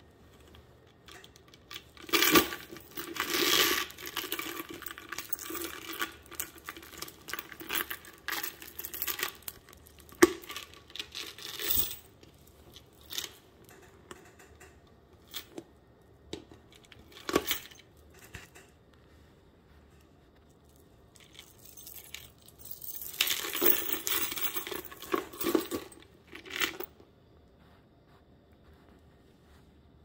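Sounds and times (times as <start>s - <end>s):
metal chain strap clinking: 0.9s - 15.6s, 16.5s - 18.6s, 21.1s - 27.0s.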